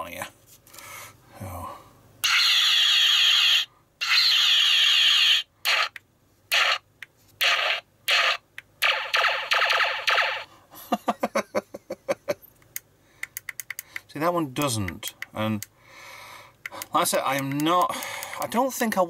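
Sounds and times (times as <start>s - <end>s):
electronic zaps: 4.0s - 6.8s, 7.4s - 10.5s.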